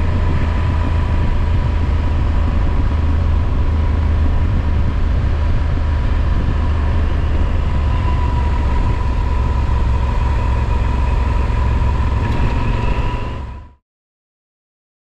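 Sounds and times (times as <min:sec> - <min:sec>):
thin steady whine: 0:01.1 - 0:13.8
wind rushing: 0:11.6 - 0:13.6.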